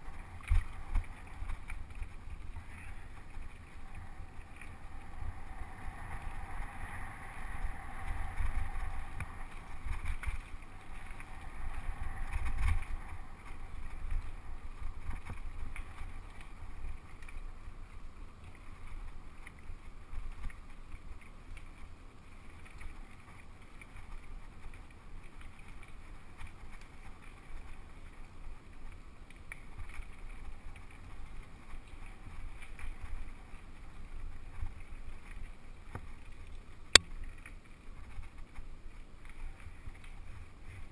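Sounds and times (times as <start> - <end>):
bike tyre noise: 0.0 - 17.9
wind rumble on microphone: 0.0 - 40.9.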